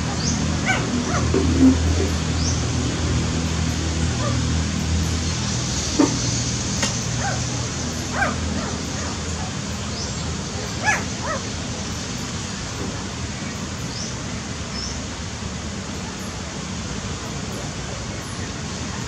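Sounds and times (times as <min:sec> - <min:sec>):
puppies squeaking and whimpering: 0:00.1 - 0:01.3.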